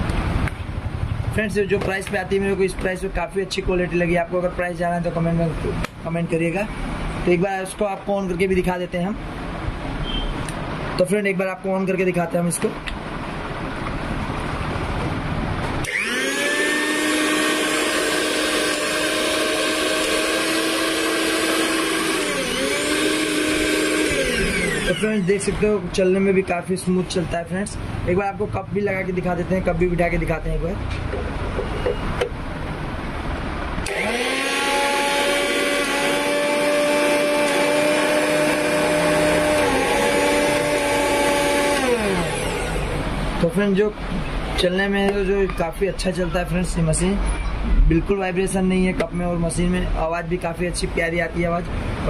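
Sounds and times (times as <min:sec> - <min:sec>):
mixer grinder motor whining: 0:15.8 - 0:25.6, 0:33.8 - 0:43.4.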